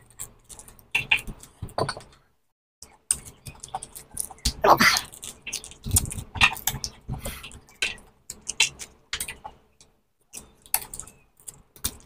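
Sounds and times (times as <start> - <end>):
chewing juicy fruit: 2.9 - 9.6
fruit being peeled and torn: 3.0 - 9.6.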